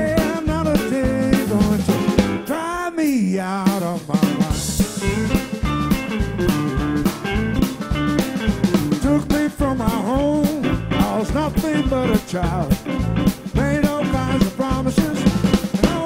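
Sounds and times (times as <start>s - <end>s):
blues band playing: 0.0s - 16.0s
amplified harmonica: 4.2s - 16.0s.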